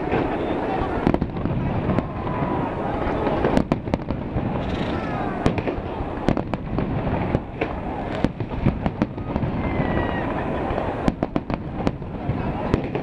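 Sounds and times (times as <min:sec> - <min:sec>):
fireworks bangs and cracks: 0:00.0 - 0:13.0
faint firework whistle: 0:04.6 - 0:05.7, 0:08.9 - 0:11.5.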